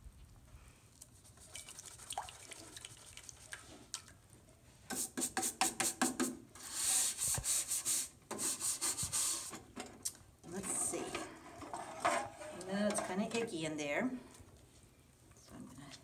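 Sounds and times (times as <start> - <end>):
brush scrubbing metal: 4.9 - 9.5.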